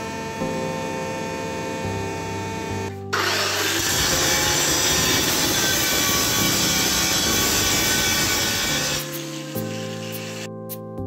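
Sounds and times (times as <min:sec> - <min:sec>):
angle grinder grinding steel: 0:03.1 - 0:10.6.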